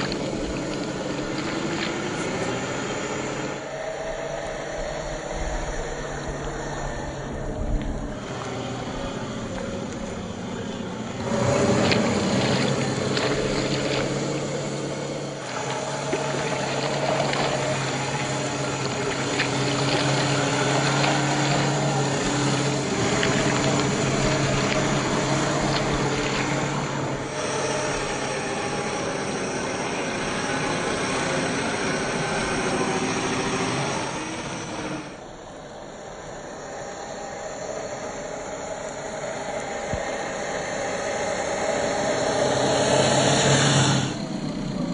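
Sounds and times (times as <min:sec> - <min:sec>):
water splashing: 0:00.0 - 0:04.1, 0:05.3 - 0:35.2
electric motor and gear whine: 0:00.0 - 0:44.9.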